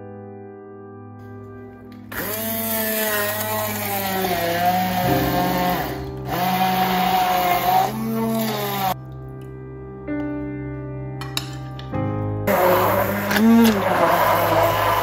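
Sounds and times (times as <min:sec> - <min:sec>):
immersion blender pureeing: 0:02.0 - 0:09.0, 0:12.5 - 0:15.0.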